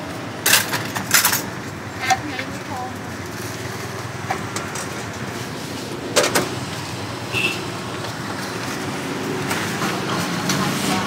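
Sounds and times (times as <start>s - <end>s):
traffic hum: 0.0s - 11.0s.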